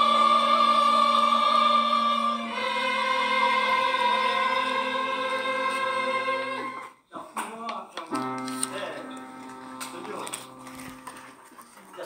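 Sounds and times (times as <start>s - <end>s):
choir singing a hymn: 0.0s - 7.0s.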